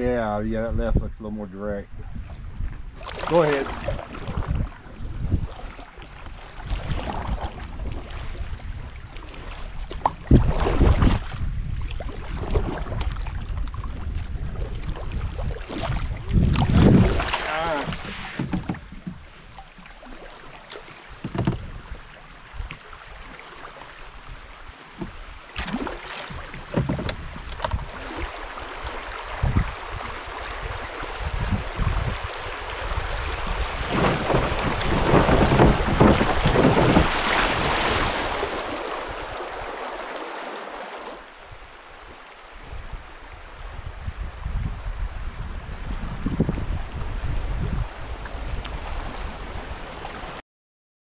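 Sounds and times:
paddle splashes and thumps: 0:02.0 - 0:43.6
river water rushing: 0:03.0 - 0:04.4, 0:16.8 - 0:26.9, 0:27.8 - 0:43.7.

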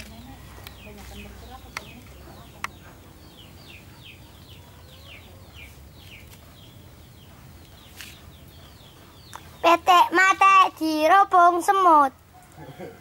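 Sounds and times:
chicks peeping: 0:00.6 - 0:10.5.

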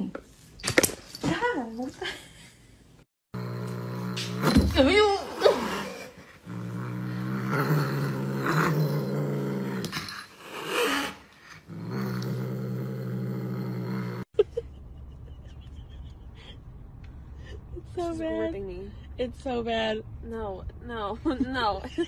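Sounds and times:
cat growling low: 0:03.3 - 0:14.3.

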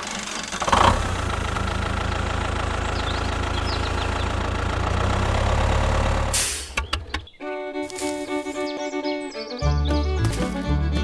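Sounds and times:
tractor engine idling: 0:00.0 - 0:08.6.

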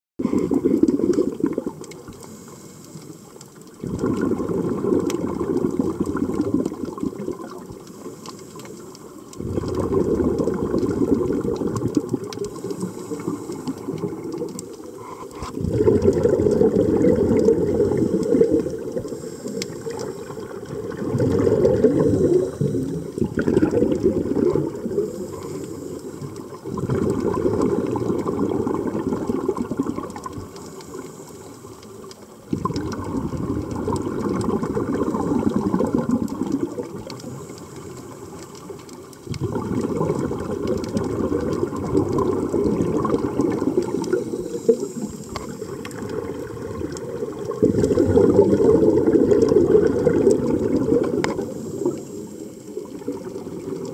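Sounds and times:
diver breathing through regulator: 0:02.1 - 0:03.4, 0:12.4 - 0:14.2, 0:14.9 - 0:16.8, 0:17.4 - 0:20.6, 0:21.2 - 0:23.4, 0:24.9 - 0:26.5, 0:43.4 - 0:46.0.

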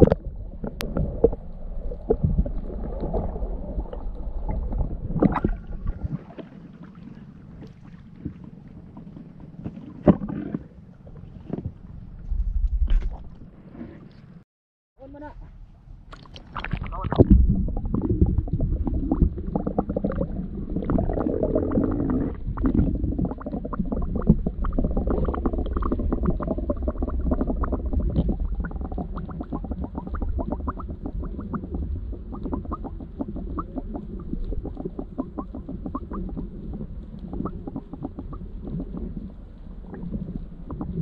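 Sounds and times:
muffled underwater rumble: 0:00.0 - 0:14.4, 0:15.0 - 0:41.0
small underwater crackles: 0:00.0 - 0:14.4, 0:16.1 - 0:41.0.

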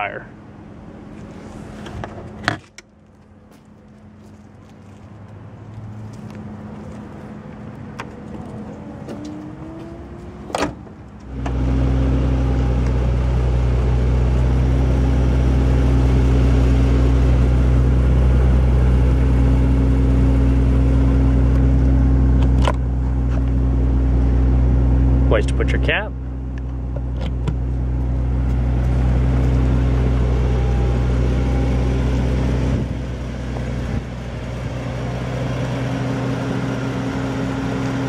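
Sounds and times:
trunk motor whine: 0:06.0 - 0:38.0
loud low multi-tone drone: 0:08.1 - 0:38.0
trunk lid thumping shut: 0:10.4 - 0:11.6.

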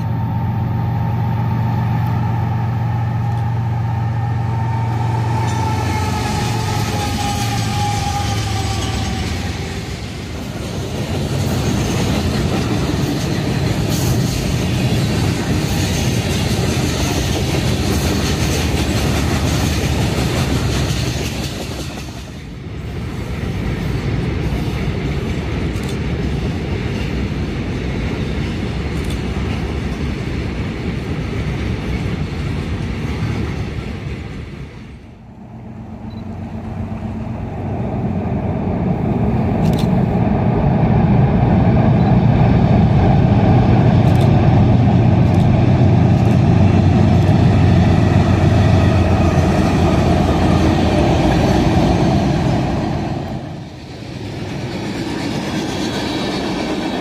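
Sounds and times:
freight cars rolling on rails: 0:00.0 - 0:57.0
train crossing steel bridge: 0:00.0 - 0:57.0.

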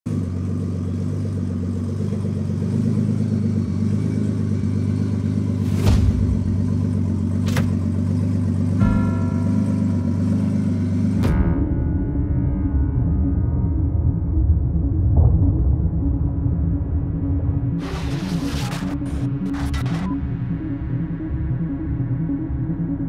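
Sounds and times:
car engine rumbling at low revs: 0:00.0 - 0:23.0
sustained music chord: 0:03.7 - 0:17.8
sharp hits: 0:05.4 - 0:20.6.

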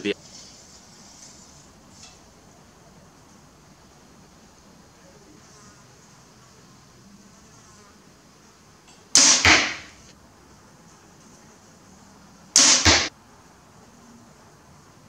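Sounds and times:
arrow striking target: 0:09.2 - 0:10.1, 0:12.6 - 0:13.1.

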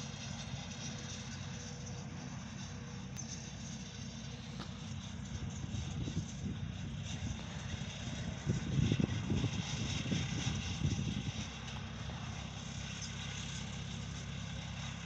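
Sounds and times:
distant tractors running: 0:00.0 - 0:15.0
wind rumble on microphone: 0:04.5 - 0:15.0.

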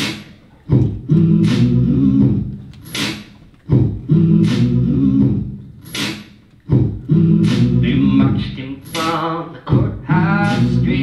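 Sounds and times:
beatboxing into microphone: 0:00.0 - 0:11.0
person singing: 0:07.8 - 0:11.0.

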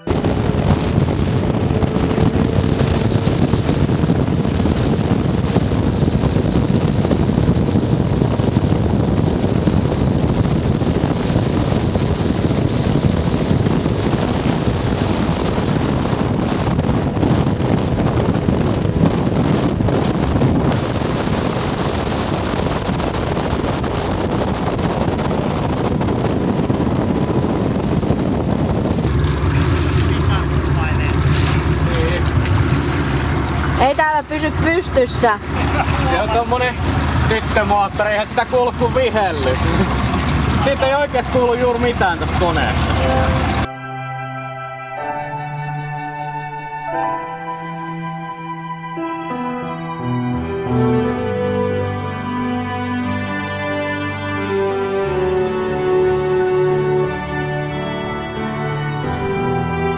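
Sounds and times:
rushing water from motorboats: 0:00.0 - 0:43.7
wind buffeting microphone: 0:00.0 - 0:52.2
faint engine tone: 0:39.3 - 0:51.9.

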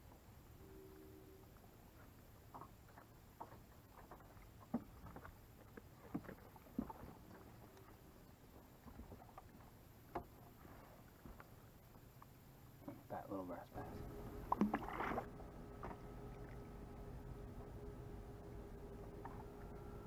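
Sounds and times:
knocks and taps in boat: 0:02.5 - 0:07.6, 0:08.8 - 0:10.4.

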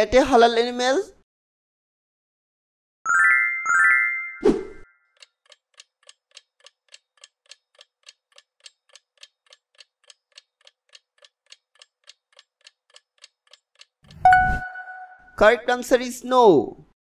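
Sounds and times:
faint clock ticking: 0:05.2 - 0:14.2.

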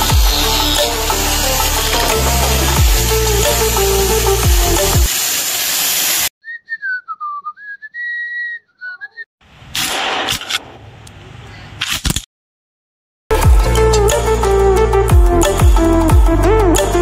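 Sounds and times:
angle grinder: 0:00.0 - 0:06.3
person whistling a tune: 0:06.4 - 0:09.3.

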